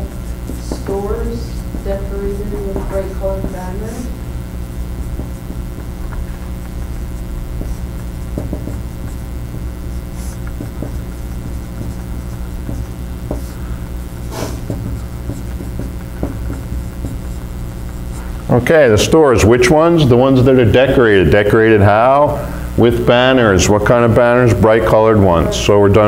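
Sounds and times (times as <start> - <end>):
marker writing on a whiteboard: 0.0 - 18.4
low room hum: 0.0 - 26.0.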